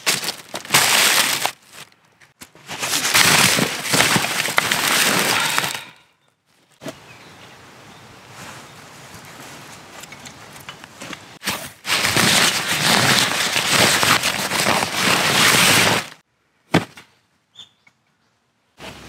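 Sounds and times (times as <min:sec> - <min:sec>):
nylon sack rustling: 0:00.0 - 0:01.9, 0:02.6 - 0:05.9, 0:11.4 - 0:16.2.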